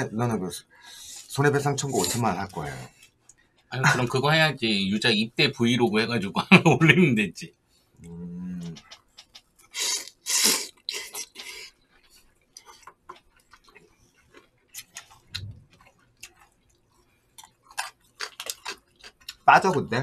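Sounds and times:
mouth sounds of eating: 0:08.0 - 0:17.0
noodles slurped: 0:08.8 - 0:11.8.

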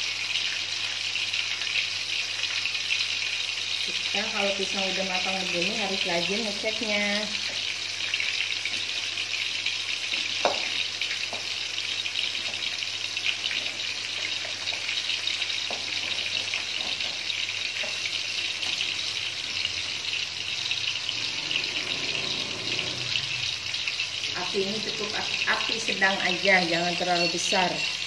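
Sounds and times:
fritters sizzling in oil: 0:00.0 - 0:28.0.

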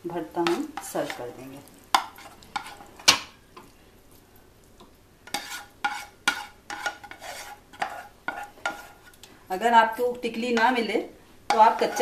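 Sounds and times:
spoon scraping a frying pan: 0:00.4 - 0:03.4, 0:05.3 - 0:09.2, 0:11.5 - 0:12.0.

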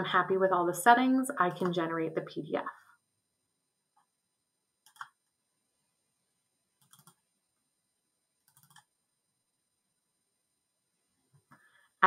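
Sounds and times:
computer mouse clicks: 0:04.8 - 0:05.3, 0:06.8 - 0:07.2, 0:08.4 - 0:08.9.

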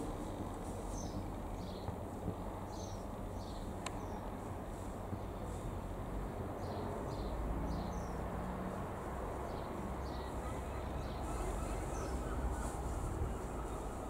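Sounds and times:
distant propeller plane drone: 0:00.0 - 0:14.0
birds chirping: 0:00.9 - 0:02.0, 0:02.6 - 0:04.4, 0:09.4 - 0:14.0.

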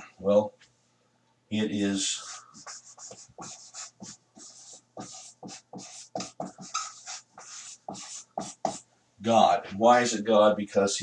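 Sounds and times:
marker squeaking on whiteboard: 0:02.1 - 0:08.8.

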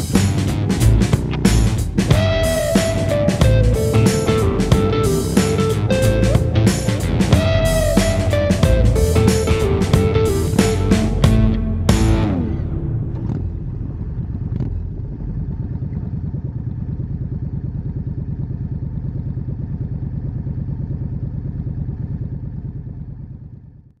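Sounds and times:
motorcycle engine idling: 0:00.0 - 0:24.0.

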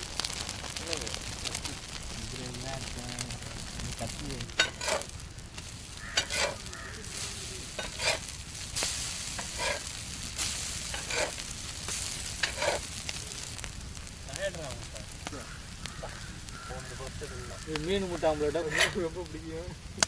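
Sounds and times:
omelettes sizzling in oil: 0:00.0 - 0:20.0
spatula scraping a pan: 0:04.5 - 0:05.1, 0:05.9 - 0:12.9, 0:18.4 - 0:19.1.

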